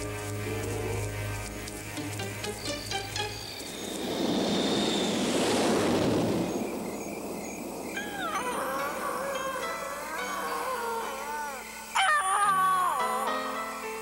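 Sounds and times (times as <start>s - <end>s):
rushing noise: 0.6s - 9.7s.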